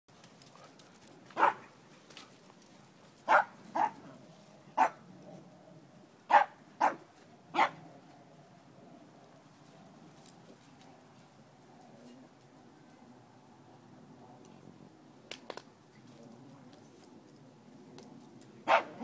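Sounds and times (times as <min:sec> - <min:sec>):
dog barking: 0:01.4 - 0:01.6, 0:03.3 - 0:04.0, 0:04.8 - 0:05.0, 0:06.3 - 0:07.8, 0:18.7 - 0:19.0.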